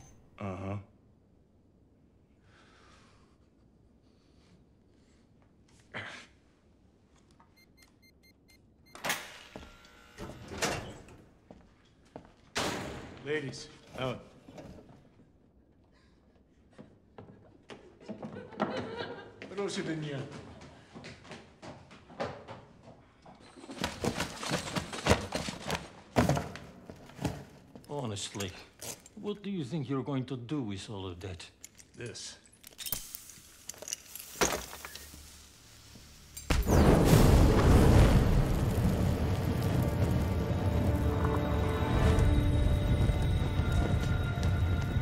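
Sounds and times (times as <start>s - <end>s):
person grunting: 0.4s - 1.0s
cardboard boxes knocking and rustling: 23.7s - 27.5s.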